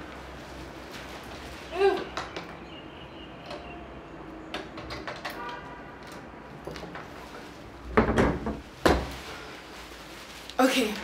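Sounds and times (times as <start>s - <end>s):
window knocks and rattles: 7.9s - 9.2s.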